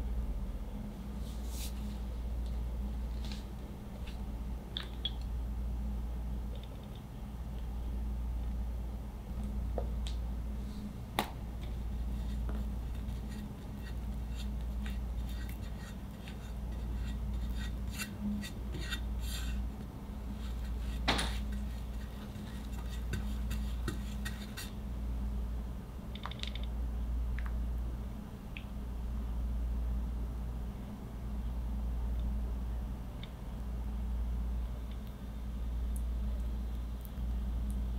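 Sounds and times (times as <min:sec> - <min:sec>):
steady low hum: 0:00.0 - 0:37.9
spatula scraping buttercream: 0:11.8 - 0:24.8.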